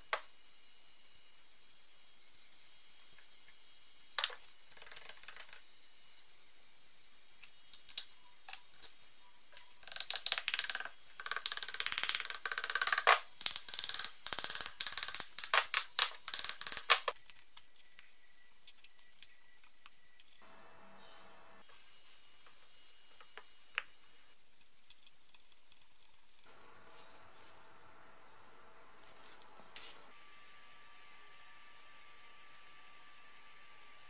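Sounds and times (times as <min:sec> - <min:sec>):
metal parts clicking and rattling: 0:07.7 - 0:17.2.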